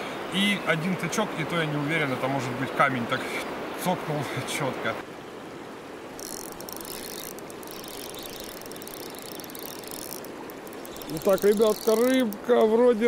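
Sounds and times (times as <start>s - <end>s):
river rushing: 0.0s - 13.0s
fishing reel whirring and clicking: 6.2s - 12.8s.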